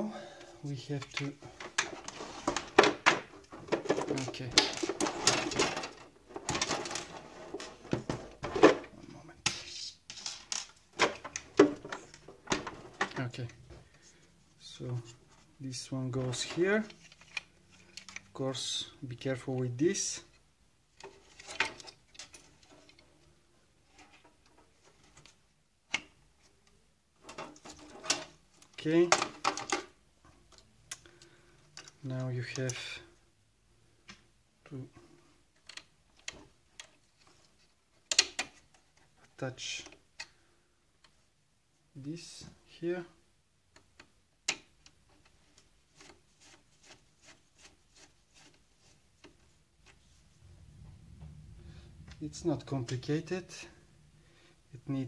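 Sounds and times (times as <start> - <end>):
hard plastic parts clicking: 1.0 - 13.6, 16.3 - 18.3, 27.2 - 32.8, 38.0 - 39.1, 43.7 - 46.2.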